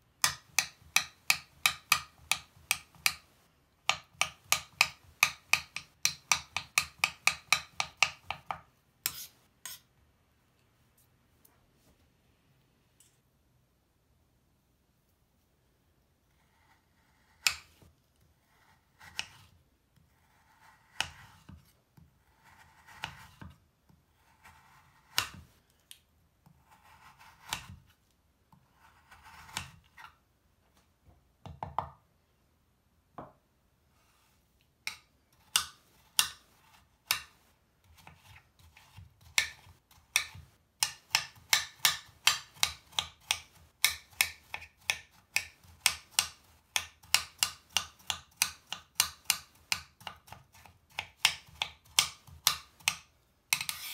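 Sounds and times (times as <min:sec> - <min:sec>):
blade tapping cutting board: 0:03.9 - 0:09.8, 0:25.1 - 0:25.4, 0:39.2 - 0:53.9.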